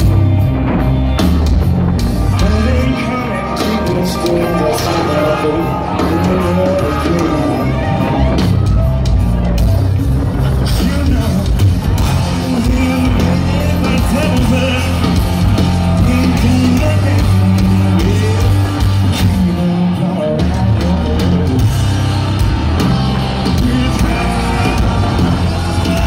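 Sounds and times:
bass: 0.0s - 26.0s
distorted electric guitars: 0.0s - 26.0s
drums: 0.0s - 26.0s
man singing: 2.3s - 8.4s, 10.5s - 22.0s, 23.3s - 26.0s.

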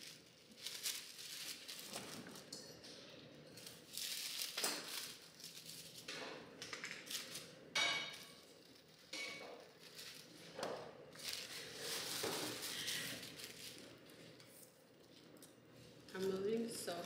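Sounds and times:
tissue paper rustling and crinkling: 0.0s - 2.5s, 3.5s - 6.1s, 7.0s - 7.5s, 8.1s - 14.8s, 15.8s - 17.0s.

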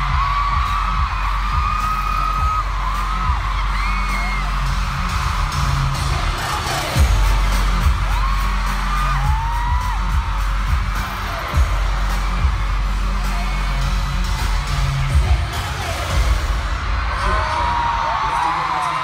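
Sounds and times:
concert pop music over speakers: 0.0s - 19.0s
crowd whooping and screaming: 0.0s - 19.0s.

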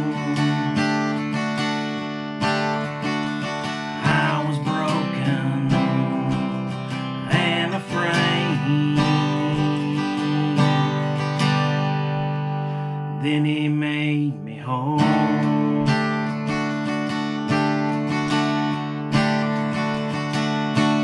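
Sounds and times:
man singing: 0.0s - 1.4s, 3.8s - 11.6s, 13.1s - 16.4s
acoustic guitar strumming: 0.0s - 21.0s.

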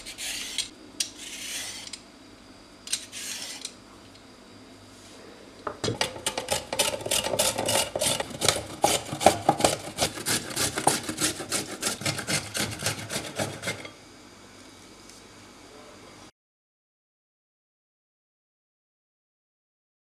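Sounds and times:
carrot grated on metal grater: 6.0s - 14.0s.

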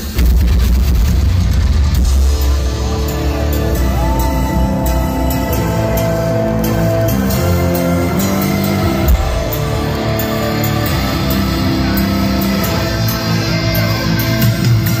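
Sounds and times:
electric guitars: 0.0s - 15.0s
heavy metal band playing loudly: 0.0s - 15.0s.

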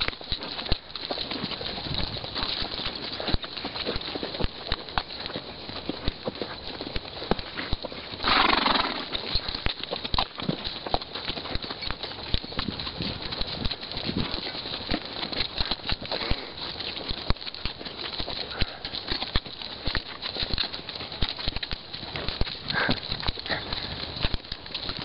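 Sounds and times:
horse hooves clopping on sand: 0.0s - 25.0s.

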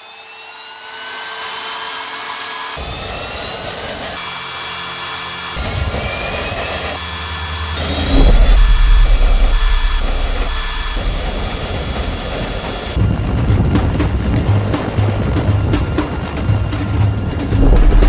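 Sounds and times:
test bench machinery whining: 2.6s - 13.0s
helicopter rotor and turbine rumble: 2.7s - 18.0s.

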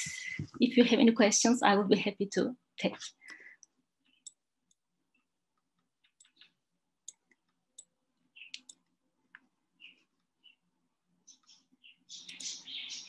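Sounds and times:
keyboard and mouse clicks: 5.7s - 9.5s, 12.2s - 12.5s.

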